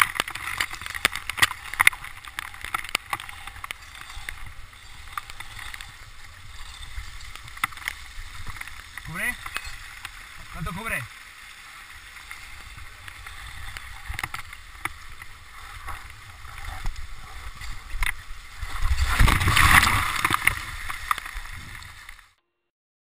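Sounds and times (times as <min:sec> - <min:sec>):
water splashing: 0:00.0 - 0:22.3
waterfall rushing: 0:08.7 - 0:14.6.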